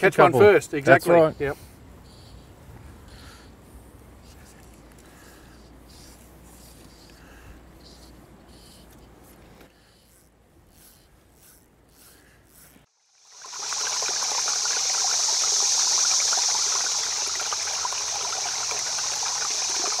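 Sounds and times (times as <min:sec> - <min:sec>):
rushing stream water: 0:13.2 - 0:20.0.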